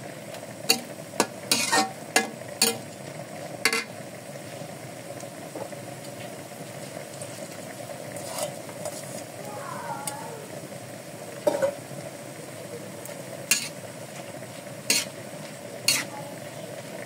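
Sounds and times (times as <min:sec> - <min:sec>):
noodles sizzling in a wok: 0:00.0 - 0:17.0
spatula scraping a pan: 0:00.7 - 0:02.8, 0:03.6 - 0:03.9, 0:08.2 - 0:09.3, 0:13.5 - 0:14.3, 0:14.9 - 0:15.2, 0:15.8 - 0:16.3.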